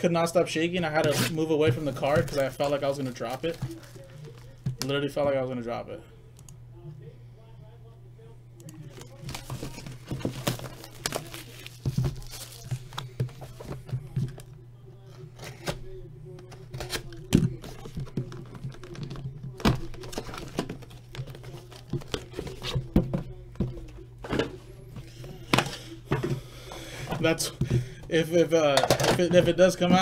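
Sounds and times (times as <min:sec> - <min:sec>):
steady low hum: 0:00.0 - 0:30.0
plastic wrap tearing and crinkling: 0:01.0 - 0:04.6, 0:08.9 - 0:13.7.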